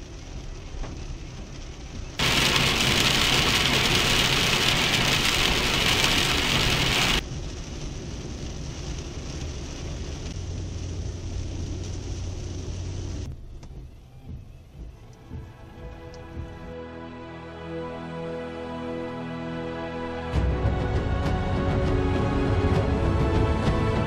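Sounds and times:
heavy rain on car roof: 0.0s - 16.5s
wet road noise: 0.0s - 16.8s.

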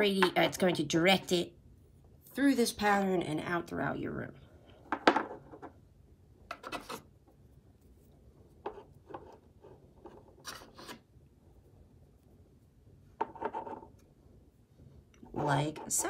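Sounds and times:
stone scraping on surface: 6.5s - 7.1s, 10.0s - 11.0s.

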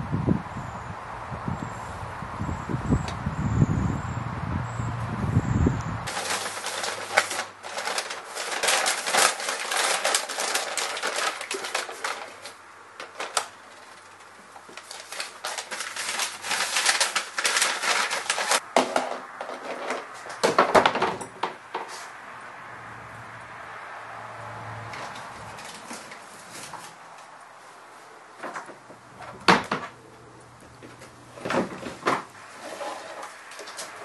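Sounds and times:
paper bags crinkling and rustling: 6.1s - 21.1s, 25.0s - 27.2s, 30.8s - 34.0s
plastic tubs clattering: 6.1s - 21.9s, 30.8s - 34.0s.

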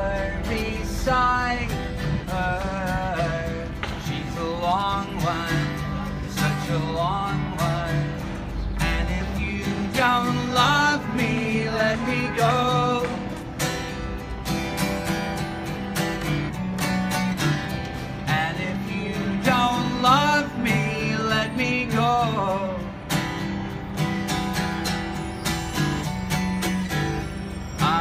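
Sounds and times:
man singing: 0.0s - 13.4s, 18.2s - 23.0s
acoustic guitar strumming: 0.0s - 28.0s.

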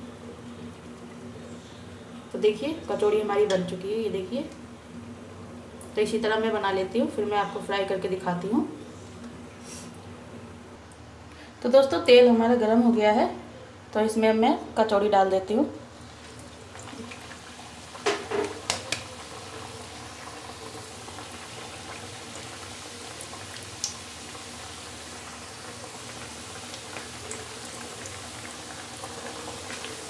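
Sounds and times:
food deep-frying in hot oil: 15.5s - 30.0s.

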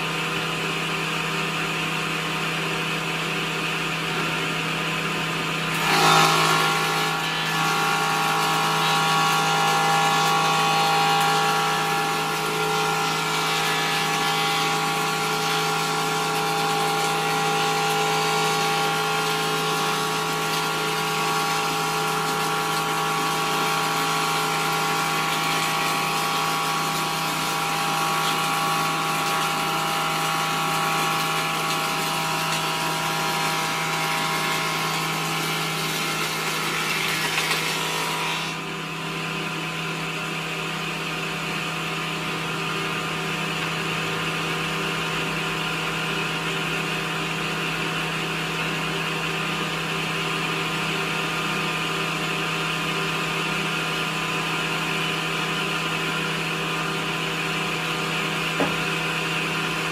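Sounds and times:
table saw running: 0.0s - 59.9s.

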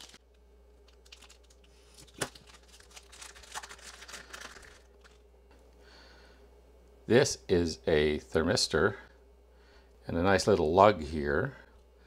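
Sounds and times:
plastic bag crinkling and tearing: 0.0s - 5.2s.

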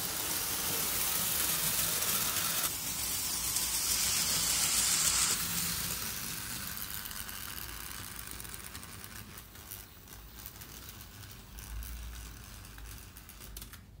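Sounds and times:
model train rattling on track: 0.0s - 11.0s.

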